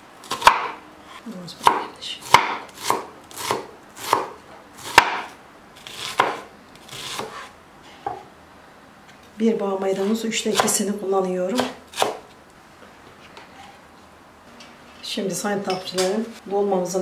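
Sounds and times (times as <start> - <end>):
knife chopping on wooden board: 0.3 - 0.8, 1.6 - 8.2, 11.6 - 12.2.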